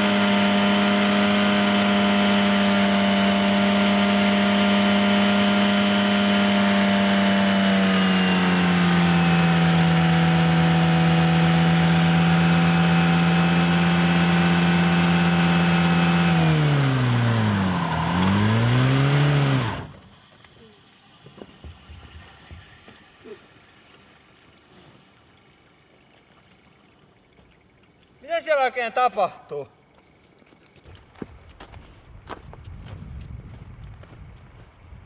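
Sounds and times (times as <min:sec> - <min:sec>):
car engine revving: 0:00.0 - 0:20.2.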